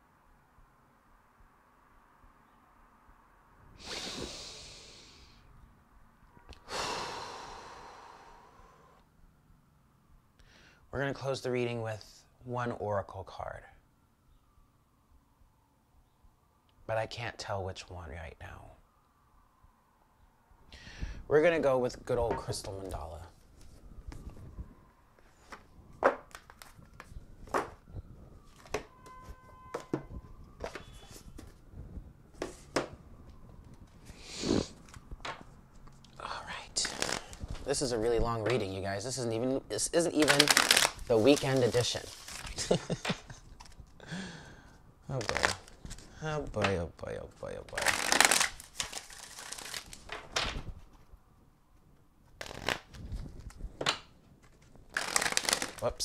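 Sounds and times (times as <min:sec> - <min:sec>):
cards being shuffled: 0:25.4 - 0:27.8, 0:30.6 - 0:31.6, 0:36.8 - 0:37.8, 0:40.1 - 0:44.0, 0:45.2 - 0:46.1, 0:47.7 - 0:50.8, 0:52.2 - 0:56.0.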